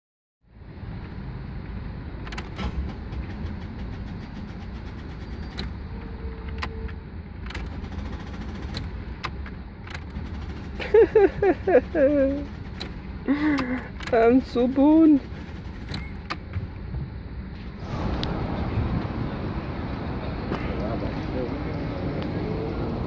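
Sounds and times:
steady low rumble: 0.5 - 23.0
ignition clicks: 5.5 - 7.8, 8.6 - 10.2, 12.7 - 14.9.

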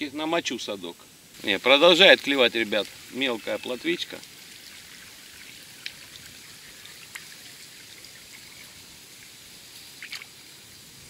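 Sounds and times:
small ticks: 5.8 - 6.0, 9.8 - 10.4.

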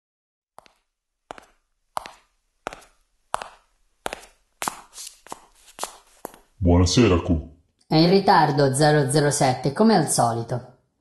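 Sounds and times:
footsteps on hard floor: 0.6 - 6.6.

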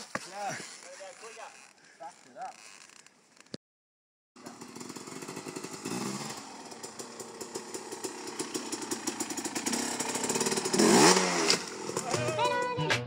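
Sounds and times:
dirt bike engine running: 4.4 - 12.7.

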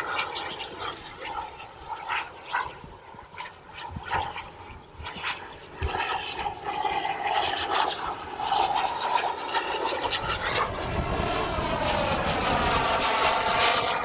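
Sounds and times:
model jet turbines whining: 0.0 - 14.0.

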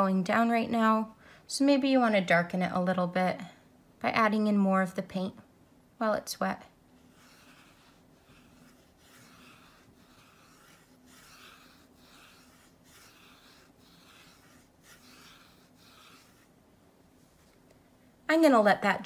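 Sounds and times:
wet brush rubbing on paper: 7.0 - 17.6.

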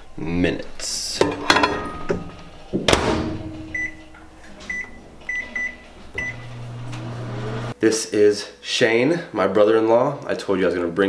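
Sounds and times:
microwave oven humming: 3.6 - 7.7.

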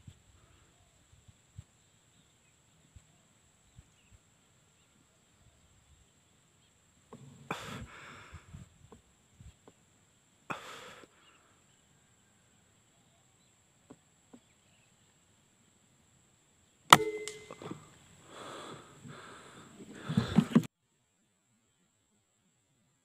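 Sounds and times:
breathy puffs of breath: 7.5 - 8.7, 10.5 - 11.8, 18.2 - 20.6.

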